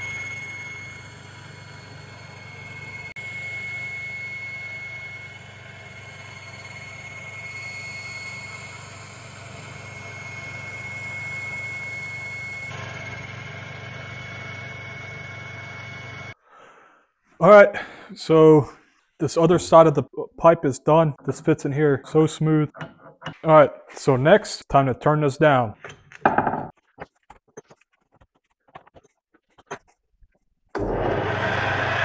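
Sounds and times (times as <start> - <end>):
high whine of metal cutting: 0.0 - 16.4, 30.8 - 32.0
metal lathe humming: 0.0 - 16.4, 21.2 - 23.9, 30.8 - 32.0.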